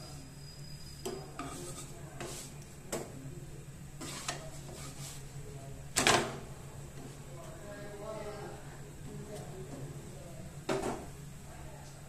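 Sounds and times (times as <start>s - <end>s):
wooden spatula scraping griddle: 1.0s - 2.6s, 4.0s - 5.4s.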